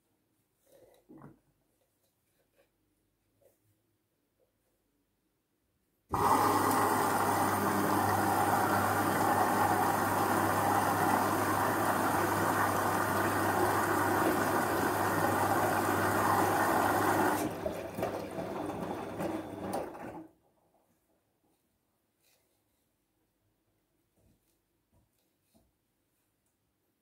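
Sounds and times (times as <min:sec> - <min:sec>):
washing machine motor hum: 0:06.1 - 0:20.3.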